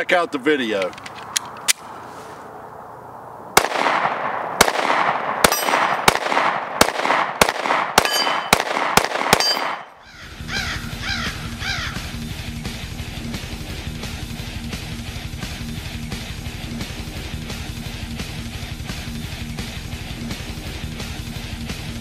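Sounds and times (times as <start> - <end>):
pistol shots: 3.6 - 10.0
ringing after shots: 3.6 - 10.0
music: 10.2 - 22.0.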